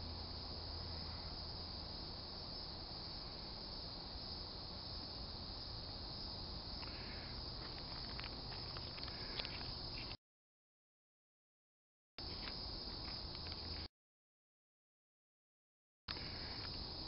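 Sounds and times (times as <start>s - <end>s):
high-pitched insect chorus: 0.0s - 10.2s, 12.2s - 13.9s, 16.1s - 17.0s.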